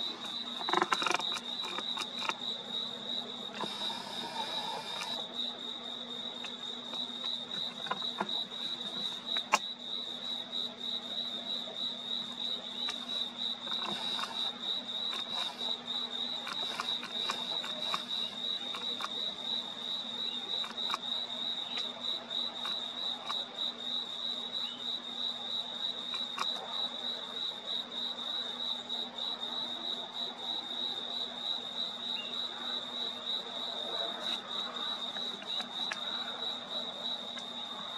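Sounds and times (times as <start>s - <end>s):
crickets chirping: 0.0s - 37.9s.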